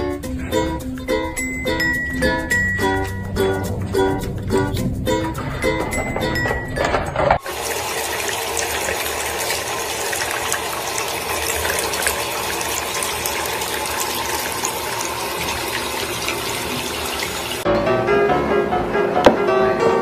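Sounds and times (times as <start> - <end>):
water running into plastic tub: 7.3 - 17.7.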